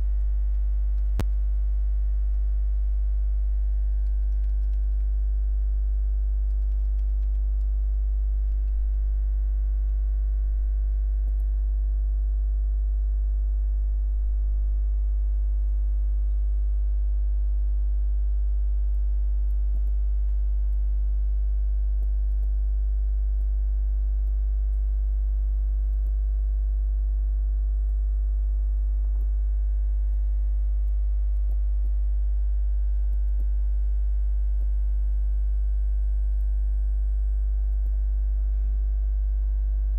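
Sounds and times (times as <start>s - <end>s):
electrical mains hum: 0.0s - 39.9s
faint clicks: 0.5s - 1.4s, 4.0s - 5.2s, 6.5s - 10.0s.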